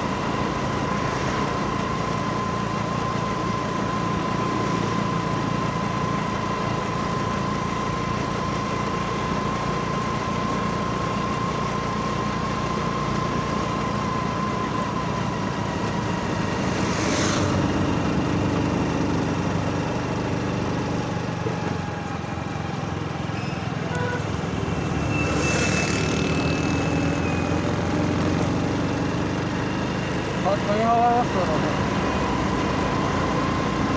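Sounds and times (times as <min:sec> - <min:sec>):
steady whine: 0:00.0 - 0:20.8
vehicle engine driving: 0:00.0 - 0:33.9
brief rushing swells: 0:16.2 - 0:18.3.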